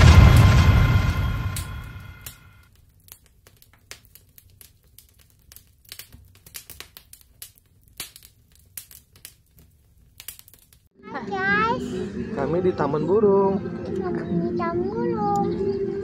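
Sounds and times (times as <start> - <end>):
faint clicks and crackles: 1.6 - 10.9.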